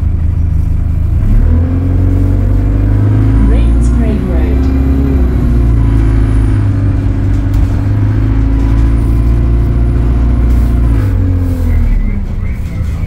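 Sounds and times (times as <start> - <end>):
bus engine droning: 0.0 - 13.0.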